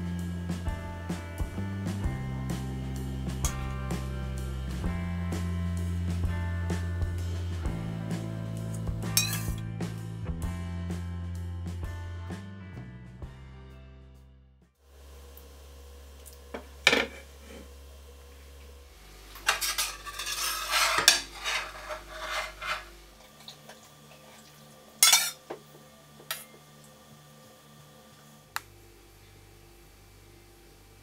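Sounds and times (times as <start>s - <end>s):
metal spoon clinking in pot: 9.2s - 9.5s, 25.0s - 25.4s.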